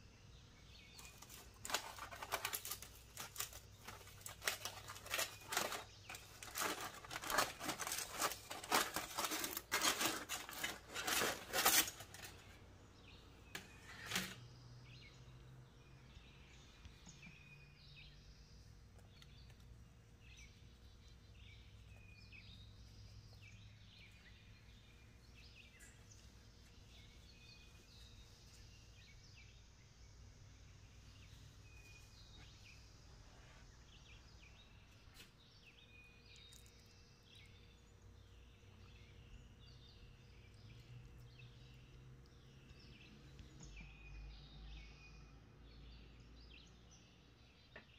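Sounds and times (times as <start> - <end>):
aluminium foil crinkling: 0.9 - 12.6, 13.5 - 14.4.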